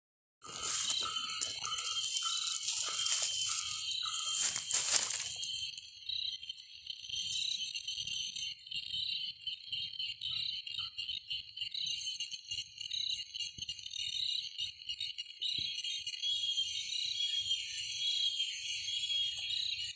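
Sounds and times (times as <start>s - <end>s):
rustling through leaves and brush: 0.4s - 5.6s
high-pitched insect chorus: 0.4s - 19.9s.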